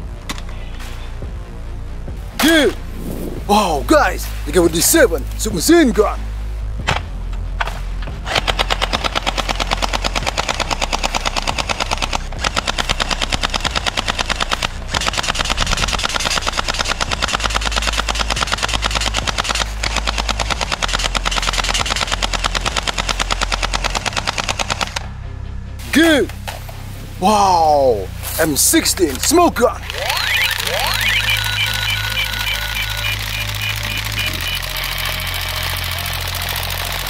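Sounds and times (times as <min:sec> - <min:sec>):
toy blaster rapid firing: 0:08.3 - 0:25.0, 0:29.9 - 0:37.0.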